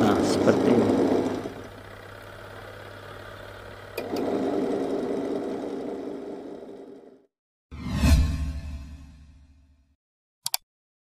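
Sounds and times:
washing machine motor running: 0.0 - 7.3.

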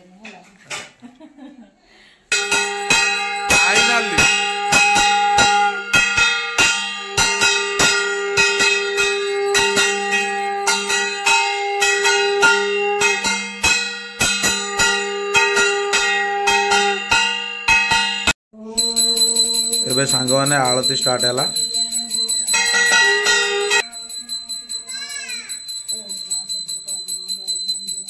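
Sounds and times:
conch shell blasts: 2.3 - 18.3
hand gong struck ringing: 2.3 - 28.0.

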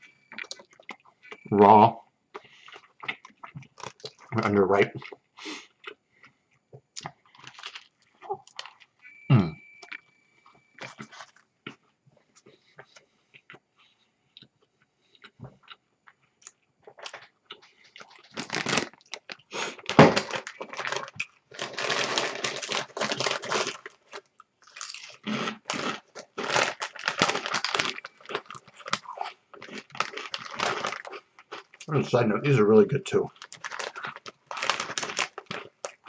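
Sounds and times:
plastic chip bag crinkling: 3.0 - 4.5, 7.0 - 8.9, 10.8 - 11.4, 16.9 - 36.0
chips crunching: 7.0 - 8.9, 16.9 - 32.0, 33.2 - 36.0.

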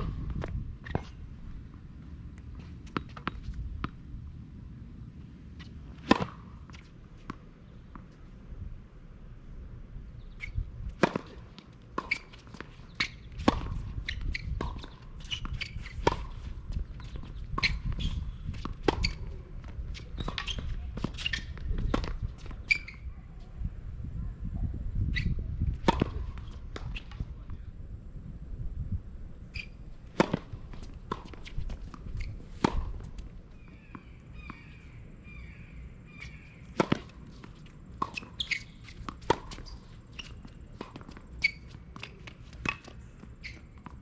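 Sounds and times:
tennis balls struck by rackets: 5.9 - 8.1, 10.9 - 22.9, 25.8 - 27.3, 29.6 - 34.6, 36.2 - 39.8
tennis balls bouncing on court: 10.9 - 23.0, 25.7 - 27.3, 29.5 - 34.6, 36.2 - 44.0.

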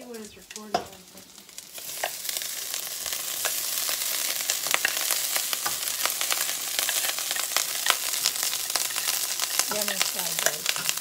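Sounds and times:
rice sizzling in oil: 0.0 - 11.0
metal spatula scraping pan: 4.6 - 9.8.

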